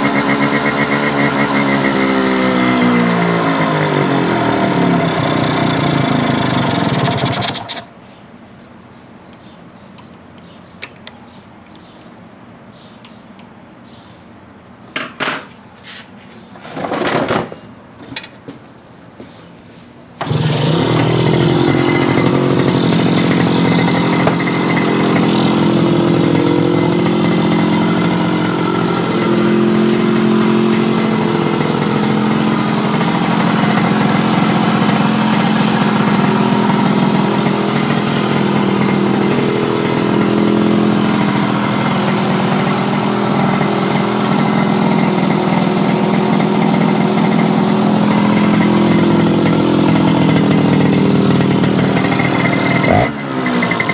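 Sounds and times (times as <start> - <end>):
two-stroke motorcycle engine running: 0.0 - 7.9, 20.2 - 53.9.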